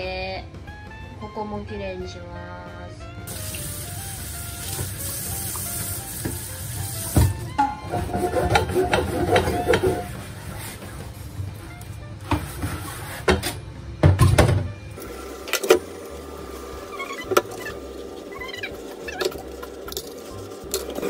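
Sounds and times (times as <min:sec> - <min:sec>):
wet crockery squeaking: 0:07.4 - 0:10.2, 0:16.8 - 0:21.0.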